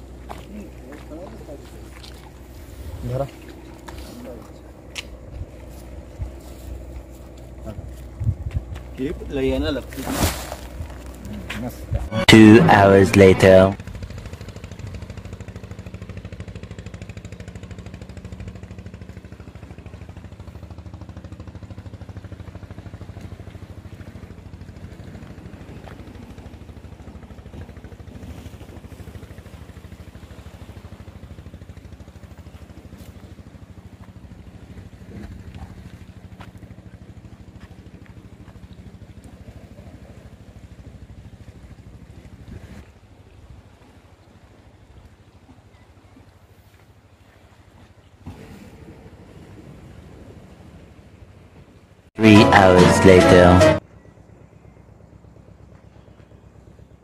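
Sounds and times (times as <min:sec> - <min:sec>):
engine idling: 0:13.8 - 0:39.2.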